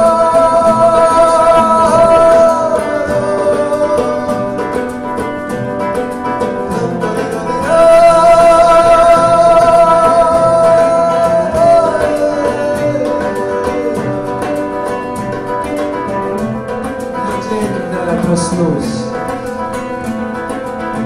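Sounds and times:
man singing: 0.0 - 5.5, 6.6 - 15.2, 17.1 - 19.6
fingerpicked classical guitar: 0.0 - 21.0.

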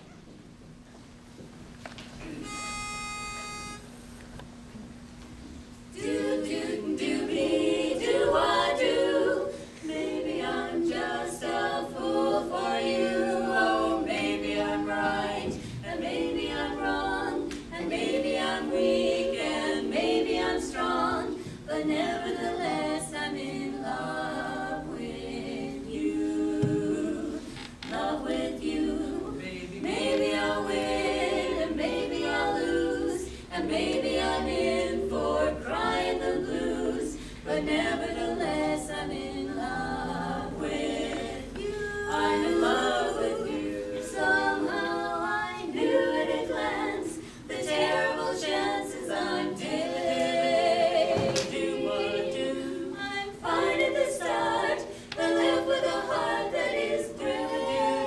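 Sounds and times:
women singing close harmony: 5.9 - 58.0
singers breathing: 33.2 - 33.5, 37.1 - 37.5, 47.2 - 47.5, 54.8 - 55.2.

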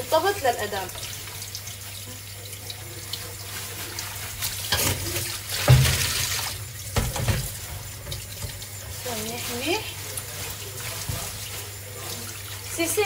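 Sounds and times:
splashes and knocks in sink: 3.1 - 13.0
tap running into steel sink: 4.7 - 8.8.

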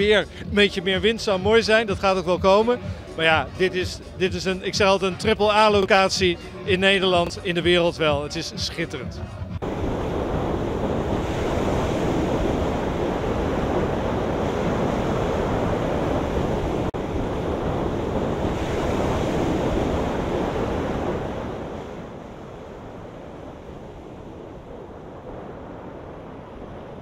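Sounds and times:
sea surf washing ashore: 0.0 - 27.0
wind buffeting microphone: 9.5 - 27.0.

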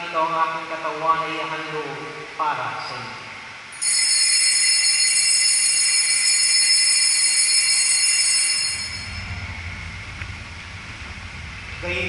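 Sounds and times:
small bells ringing: 3.7 - 9.5.

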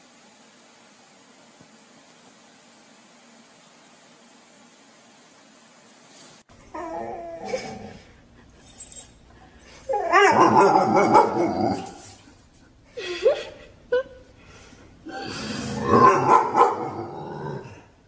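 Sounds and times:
faint hiss: 0.0 - 6.6
dog whining and yipping: 8.6 - 12.1.

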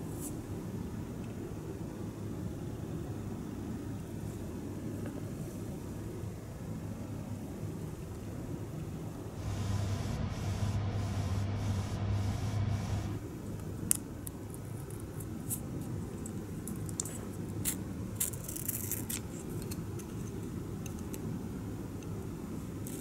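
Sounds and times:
low hum: 9.4 - 13.2
masking tape crinkling: 14.2 - 20.4.

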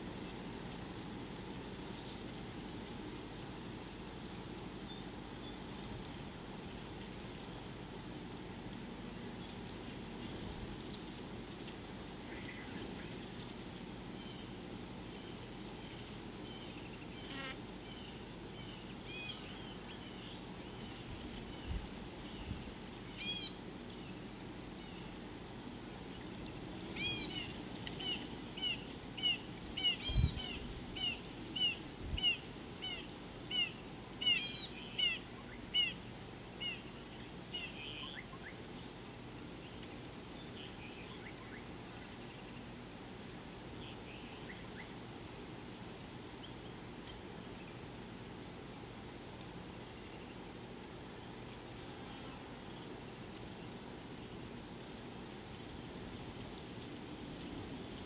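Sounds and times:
bird calling sharp notes: 27.0 - 35.2.

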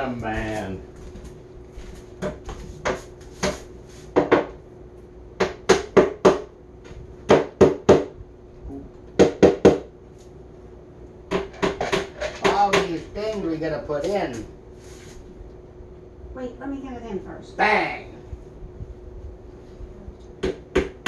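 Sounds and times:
hammer tapping on particleboard: 11.3 - 13.0.

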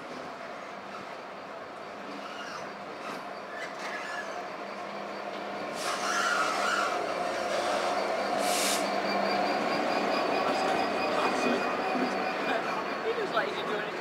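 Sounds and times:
diesel locomotive engine running: 0.0 - 14.0
train rumbling past: 0.0 - 14.0
brief hiss: 8.4 - 8.9.

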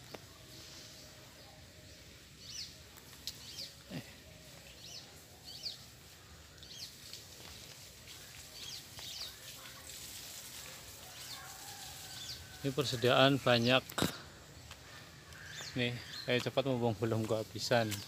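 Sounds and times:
bird chirping: 0.0 - 7.2, 14.5 - 18.0.

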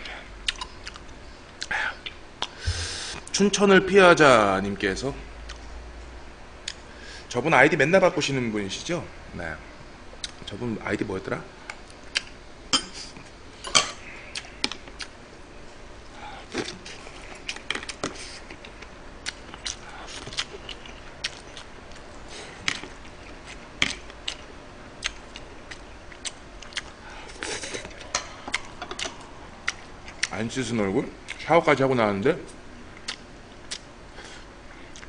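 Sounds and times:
chewing: 0.4 - 2.5, 16.5 - 30.4.

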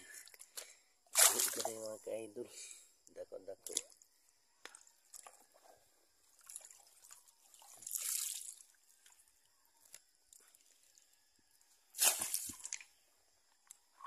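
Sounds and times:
water dripping and trickling: 3.6 - 11.3.

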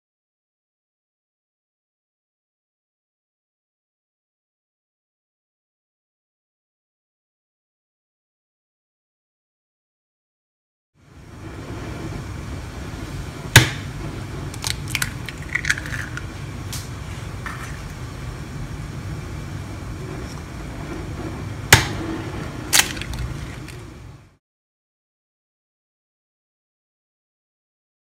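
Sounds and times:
steady low hum: 11.0 - 24.4
eggs cracking on glass bowl: 14.5 - 16.3.

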